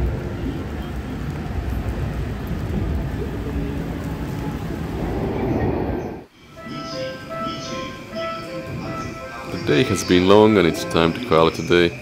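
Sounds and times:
steady rain: 0:00.0 - 0:06.3
low rumble: 0:01.1 - 0:06.3.

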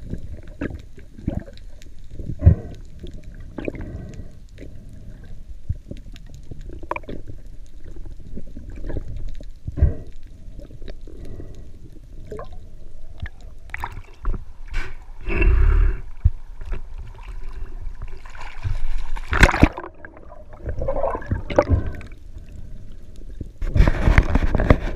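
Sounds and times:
water sloshing and gurgling: 0:00.0 - 0:24.9
water splashing: 0:13.2 - 0:15.1, 0:16.1 - 0:22.5.

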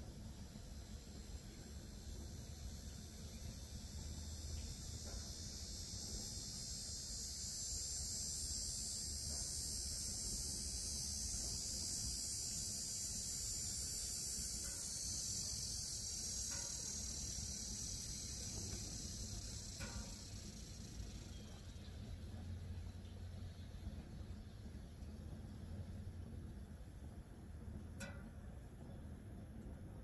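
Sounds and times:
insects buzzing: 0:00.0 - 0:25.5
wood fire rumbling: 0:21.0 - 0:30.0.

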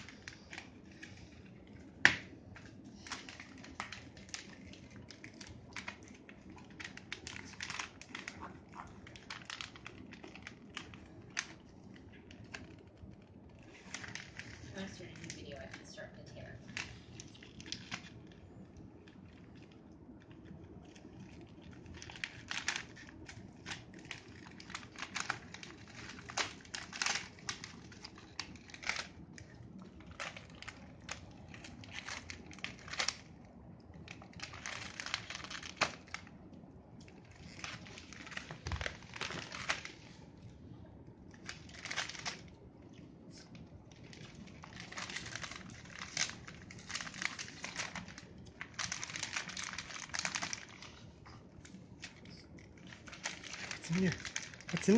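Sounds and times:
wrapping paper crinkling and tearing: 0:00.0 - 0:54.9.

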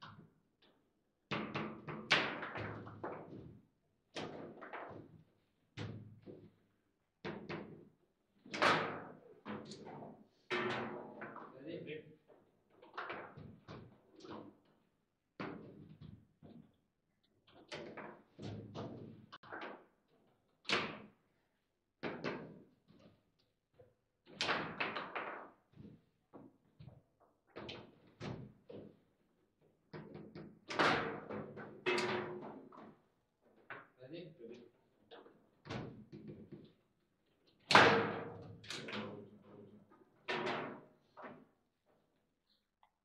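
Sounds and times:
table football knocks and clacks: 0:00.0 - 0:06.6, 0:07.2 - 0:11.5, 0:15.4 - 0:16.8, 0:22.0 - 0:23.1, 0:24.3 - 0:29.0.

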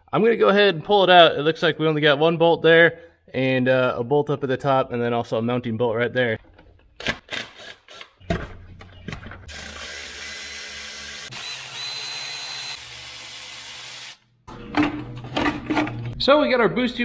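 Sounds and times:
electric ratchet running: 0:09.5 - 0:14.2.

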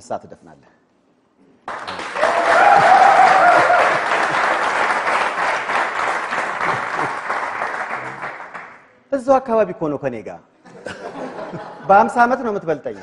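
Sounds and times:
audience applauding: 0:01.7 - 0:08.8.

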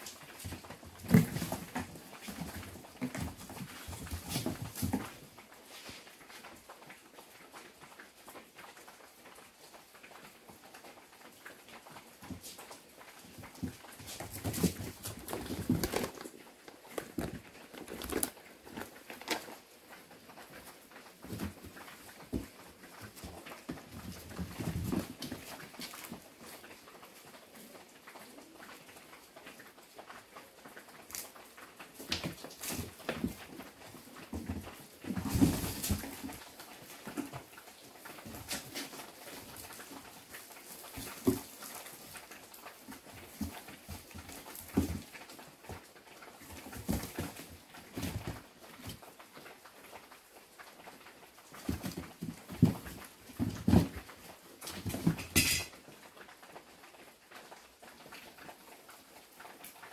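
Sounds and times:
kittens scrambling over wood: 0:00.0 - 0:08.0, 0:08.6 - 0:56.7
fabric bag rustling: 0:15.1 - 0:19.6.

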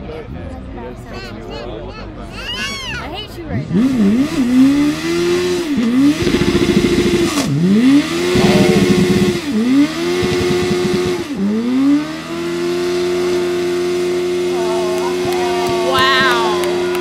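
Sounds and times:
motorcycle engine revving: 0:03.6 - 0:17.0.

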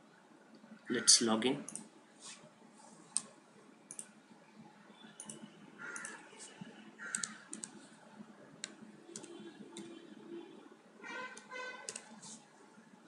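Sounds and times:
keyboard typing: 0:03.1 - 0:04.2, 0:05.1 - 0:08.0, 0:08.6 - 0:10.0, 0:11.1 - 0:12.4
computer mouse click: 0:03.9 - 0:04.1, 0:05.2 - 0:06.2, 0:07.1 - 0:07.8, 0:08.6 - 0:09.9, 0:11.4 - 0:12.2.

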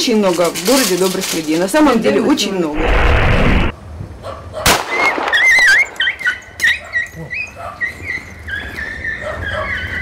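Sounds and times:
dog yelping: 0:05.7 - 0:10.0
dog whining: 0:06.0 - 0:10.0.

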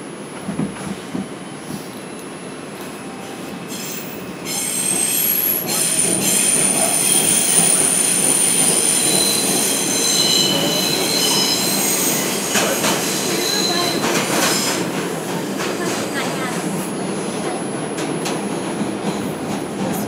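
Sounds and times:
subway train rumble: 0:00.0 - 0:20.0
wheels squealing on rails: 0:03.6 - 0:14.9.

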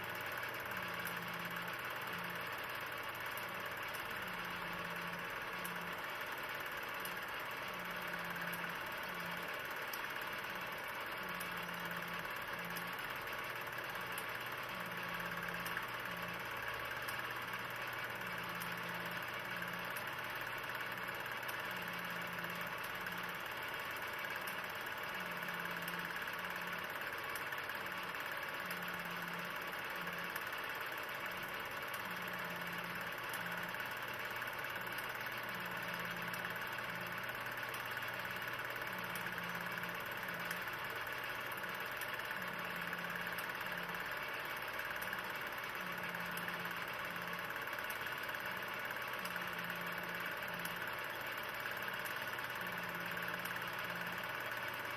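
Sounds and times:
film projector whirring: 0:00.0 - 0:54.9.

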